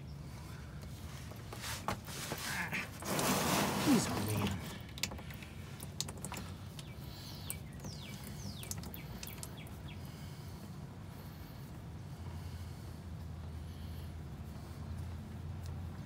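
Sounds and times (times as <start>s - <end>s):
bird chirps: 6.8s - 10.2s.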